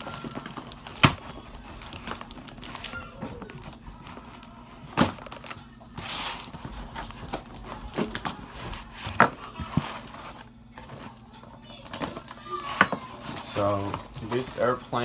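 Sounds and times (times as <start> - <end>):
cardboard flaps tearing: 0.0 - 10.5.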